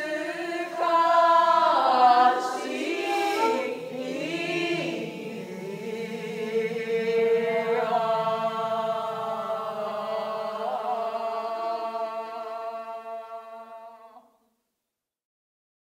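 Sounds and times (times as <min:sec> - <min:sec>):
higher voice chanting: 0:00.0 - 0:14.3
voices chanting long notes: 0:00.0 - 0:14.3
low sustained drone: 0:02.4 - 0:07.8.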